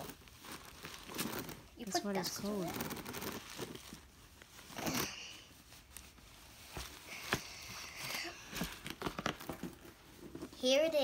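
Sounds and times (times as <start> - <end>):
soft rustling of bag and box: 0.0 - 11.0.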